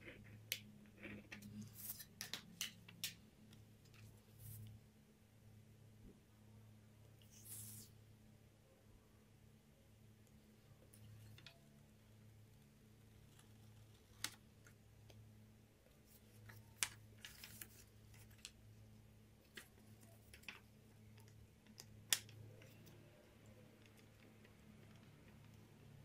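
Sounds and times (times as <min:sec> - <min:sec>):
faint low hum: 0:00.0 - 0:26.0.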